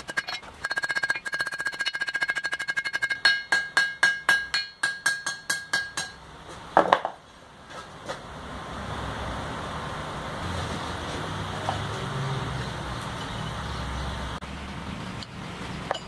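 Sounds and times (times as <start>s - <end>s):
hammer striking steel on anvil: 0.0s - 6.3s.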